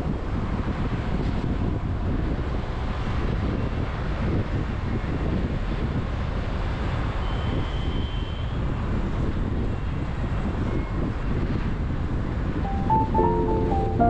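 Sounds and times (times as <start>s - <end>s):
faint thin high tone: 12.7s - 14.0s.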